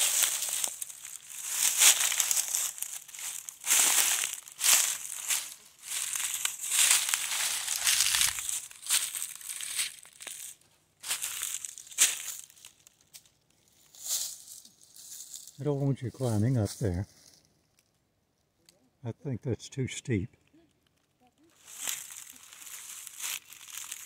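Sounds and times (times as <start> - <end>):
footsteps crunching dead leaves: 0.0 - 15.6, 21.5 - 24.0.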